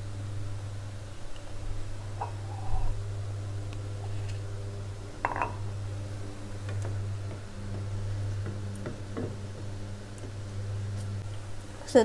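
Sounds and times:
steady low hum: 0:00.0 - 0:12.0
spatula knocking on saucepan: 0:07.2 - 0:10.4.

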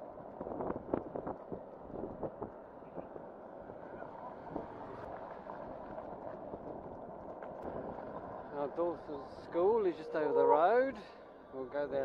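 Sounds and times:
electric scooter road noise: 0:00.0 - 0:12.0
wind on microphone: 0:00.2 - 0:03.1.

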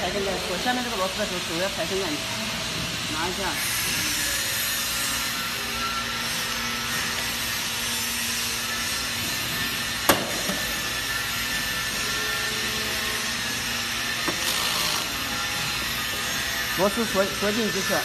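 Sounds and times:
wrench turning a screw: 0:14.1 - 0:17.0.

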